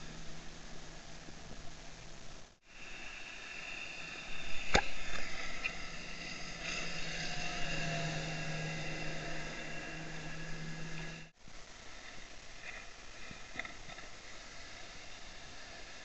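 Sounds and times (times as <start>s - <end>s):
motorboat engine whine: 0.0s - 11.4s
wind: 0.0s - 16.0s.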